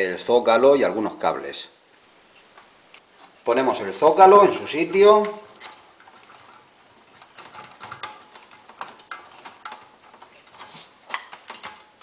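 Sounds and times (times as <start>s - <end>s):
plastic and metal clicks and scrapes: 5.2s - 12.0s.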